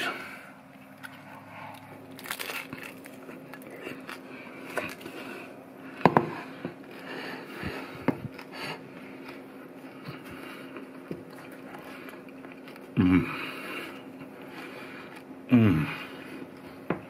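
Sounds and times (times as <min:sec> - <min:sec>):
fried rice paper crackling: 0:01.2 - 0:05.4.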